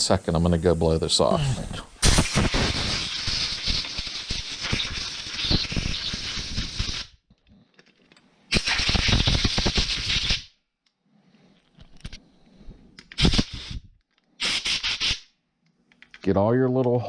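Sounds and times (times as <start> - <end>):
compressed air blow gun hissing: 0.0 - 7.1, 8.5 - 10.4, 13.2 - 15.2.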